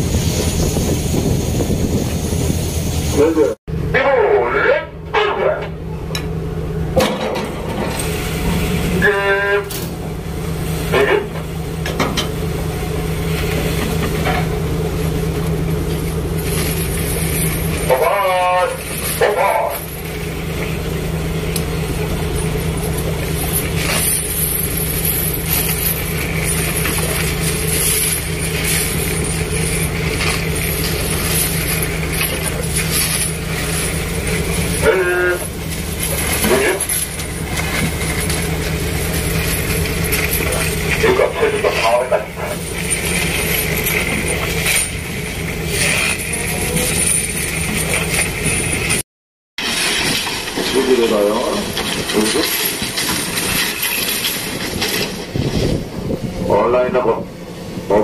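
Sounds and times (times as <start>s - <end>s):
boat engine running: 0.0s - 49.0s
churning wake: 0.0s - 49.0s
wind: 0.0s - 49.0s, 49.6s - 58.0s
horn-like tone: 8.9s - 9.8s.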